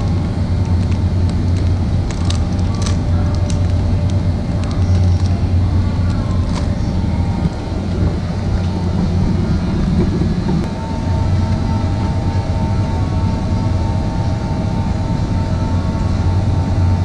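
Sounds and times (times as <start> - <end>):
refrigerated display cases humming: 0.0 - 17.0
plastic pastry pack crinkling: 1.6 - 3.8.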